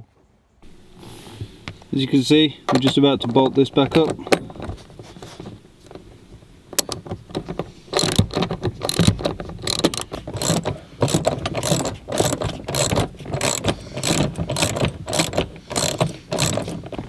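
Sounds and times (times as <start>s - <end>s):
ratchet wrench clicking: 7.9s - 16.8s.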